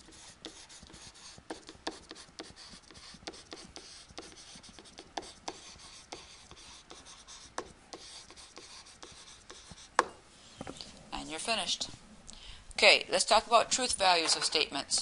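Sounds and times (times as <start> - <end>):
stylus scratching on tablet: 0.0 - 10.0.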